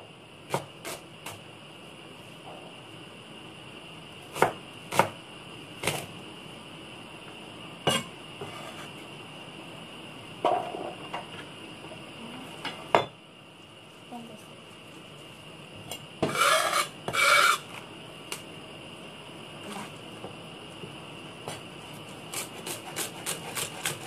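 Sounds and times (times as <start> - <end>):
blade scraping across board: 16.3 - 17.6.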